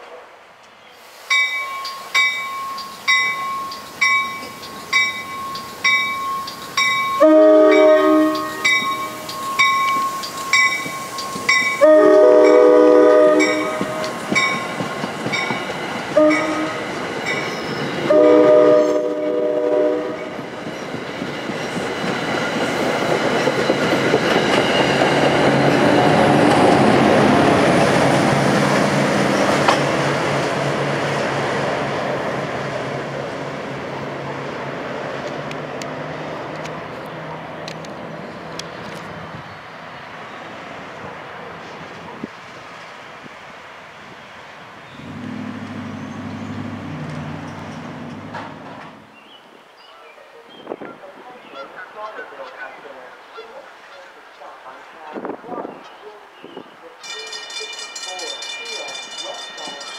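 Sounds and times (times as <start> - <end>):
crossing bell ringing: 1.3 - 20.4, 57.0 - 59.9
train rumble: 1.3 - 49.1
train horn blasts: 7.2 - 9.3, 11.8 - 14.2, 16.2 - 16.9, 18.1 - 20.4.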